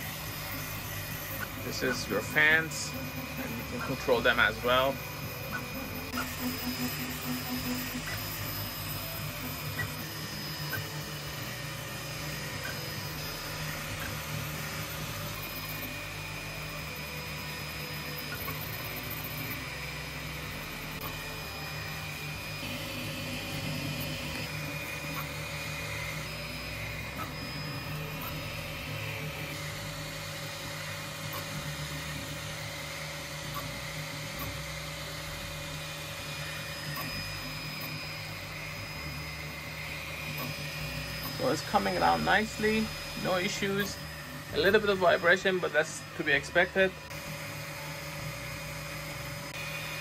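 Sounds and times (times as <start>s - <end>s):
printer fans and motors whirring: 0.0s - 50.0s.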